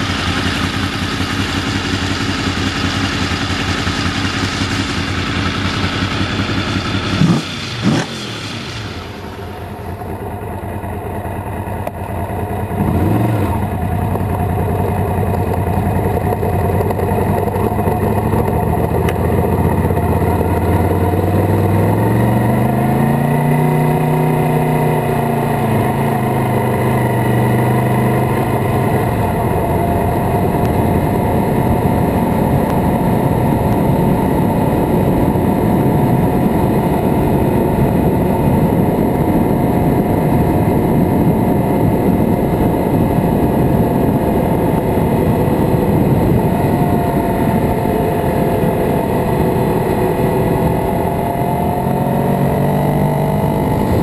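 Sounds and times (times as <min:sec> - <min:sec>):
motorcycle engine accelerating: 0:00.0 - 0:54.0
wind rush: 0:24.9 - 0:54.0.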